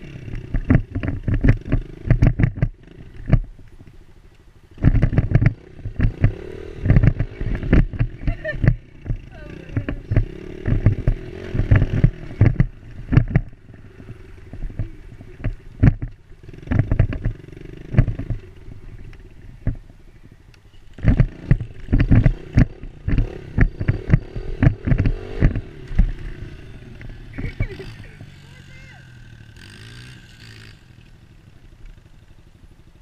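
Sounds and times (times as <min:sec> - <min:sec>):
dirt bike engine running: 0:00.0 - 0:33.0
knocks and wind buffets on microphone: 0:00.4 - 0:03.5, 0:04.8 - 0:13.5, 0:14.5 - 0:18.4, 0:21.0 - 0:26.2.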